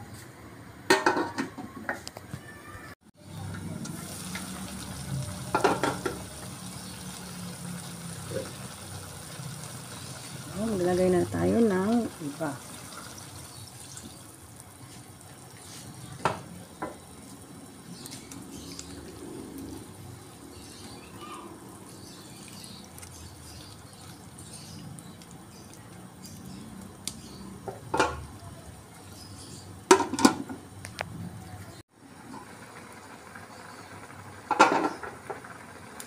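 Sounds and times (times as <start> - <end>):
food simmering in a wok: 3.2 - 30.8, 31.6 - 36.0
wooden spatula knocking on pan: 5.5 - 6.2.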